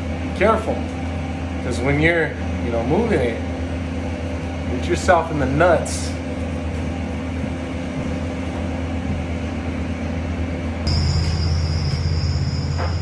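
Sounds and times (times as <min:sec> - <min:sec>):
high-pitched whine: 0:10.8 - 0:13.0.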